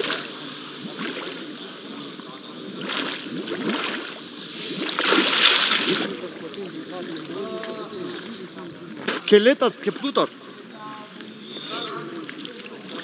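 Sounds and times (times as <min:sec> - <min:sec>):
bubbles gurgling at water surface: 0:00.0 - 0:06.5
lapping water: 0:00.0 - 0:13.0.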